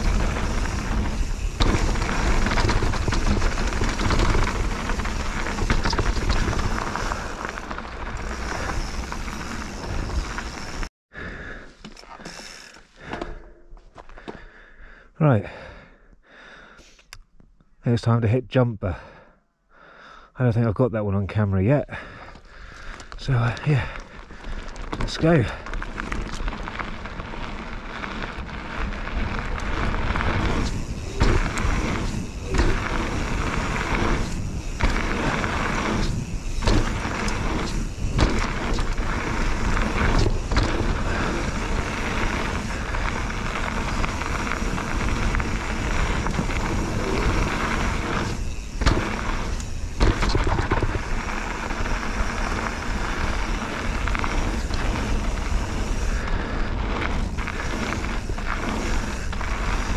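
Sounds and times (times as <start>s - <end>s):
bike landing knocks: 0.0s - 6.8s, 30.4s - 41.3s, 48.6s - 51.2s
tyres rolling on gravel: 0.0s - 10.9s, 21.8s - 59.9s.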